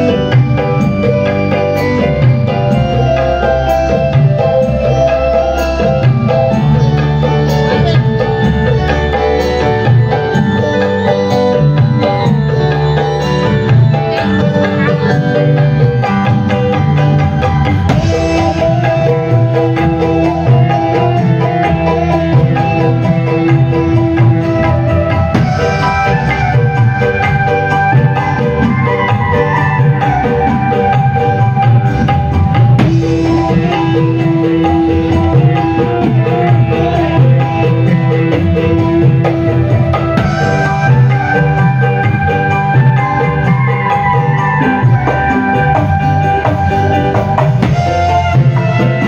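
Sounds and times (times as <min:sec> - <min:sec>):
band playing through pa: 0:00.0 - 0:49.0
bass line: 0:00.0 - 0:49.0
hand drum rhythm: 0:00.0 - 0:49.0.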